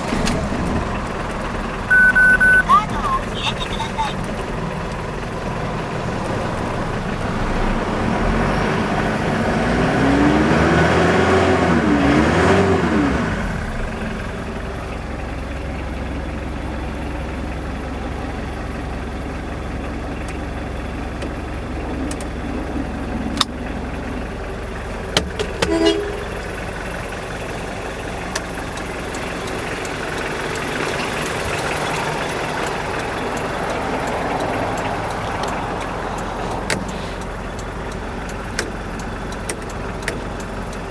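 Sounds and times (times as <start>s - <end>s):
diesel engine revving and idling: 0.0s - 40.9s
short beep: 1.9s - 3.0s, 25.7s - 26.4s
sharp clicks: 32.6s - 40.9s.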